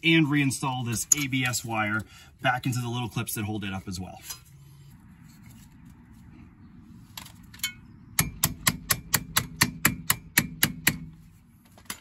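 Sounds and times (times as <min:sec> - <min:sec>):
sharp metallic taps: 0:07.6 - 0:11.1.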